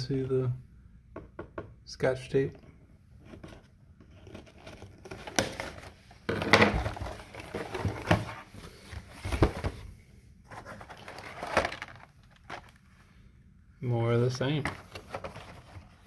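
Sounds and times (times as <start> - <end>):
cardboard rustling and scraping: 3.2 - 13.0, 14.5 - 16.0.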